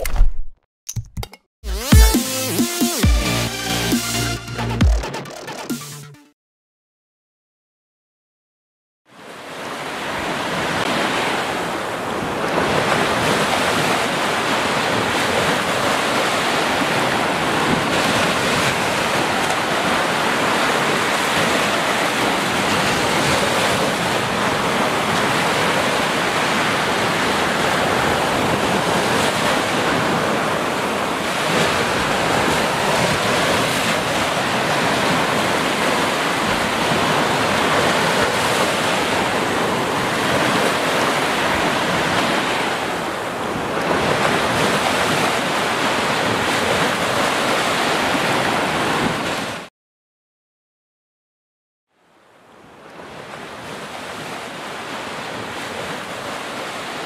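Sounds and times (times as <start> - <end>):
ocean waves breaking on beach: 9.1 - 49.7, 52.3 - 57.0.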